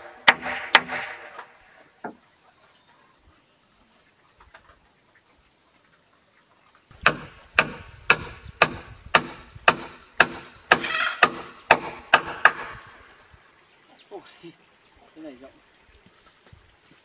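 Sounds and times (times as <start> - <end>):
hammer driving nails into wood: 0.1 - 1.5, 7.0 - 12.8.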